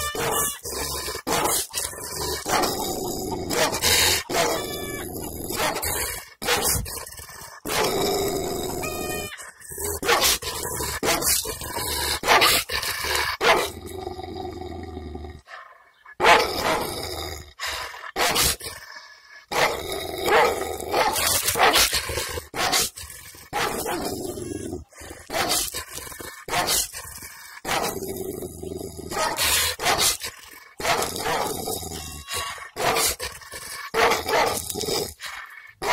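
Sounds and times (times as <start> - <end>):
dog barking angrily: 1.2 - 1.7, 2.4 - 6.9, 10.0 - 10.4, 11.0 - 11.4, 12.1 - 12.7, 13.4 - 13.8, 16.2 - 16.9, 18.2 - 18.6, 19.5 - 24.1, 25.2 - 27.0, 27.6 - 28.0, 29.1 - 31.6, 32.7 - 34.7.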